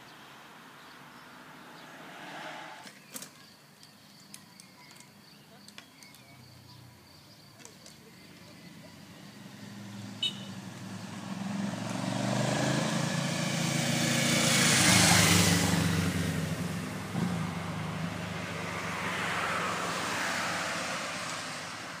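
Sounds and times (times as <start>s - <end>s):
softer vehicle passing: 0.8s - 3.1s, 8.2s - 22.0s
car passing by: 1.0s - 3.1s, 9.0s - 22.0s.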